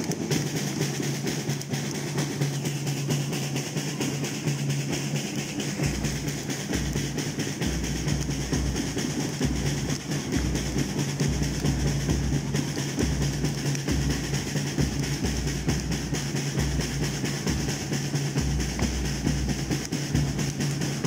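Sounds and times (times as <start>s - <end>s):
fast drumming clatter: 0.0s - 21.0s
low drum beat: 0.0s - 21.0s.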